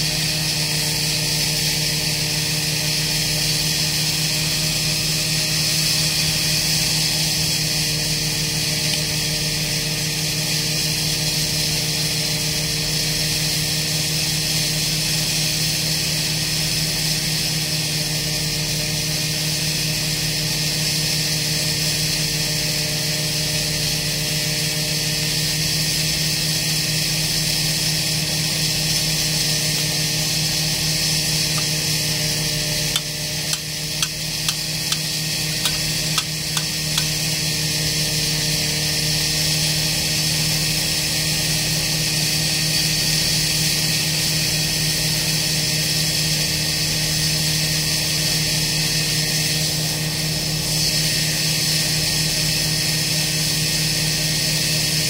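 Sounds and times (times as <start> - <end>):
diesel engine running steadily: 0.0 - 40.6.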